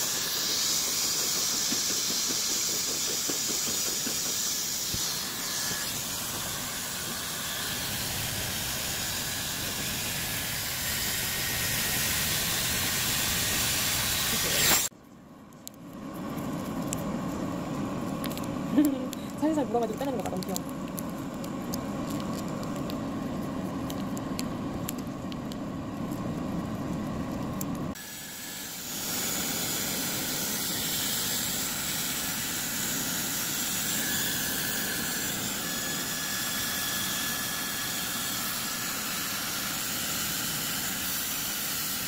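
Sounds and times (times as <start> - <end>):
hair dryer blowing: 0.0 - 14.9.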